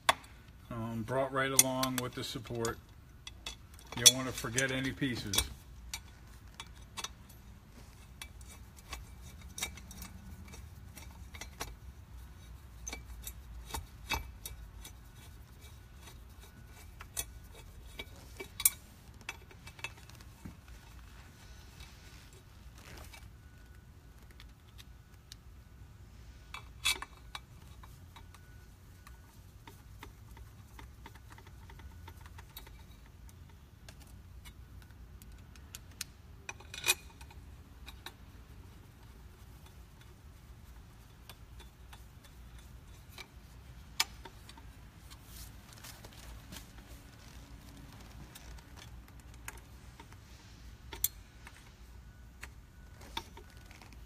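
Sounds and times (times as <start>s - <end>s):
screwdriver clicking on metal bolts: 1.3s - 7.4s, 8.0s - 20.2s, 26.5s - 38.3s.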